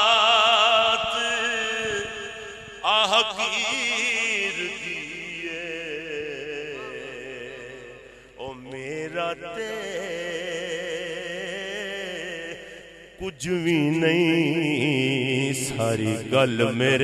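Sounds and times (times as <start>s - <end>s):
man singing with vibrato: 0.0s - 17.0s.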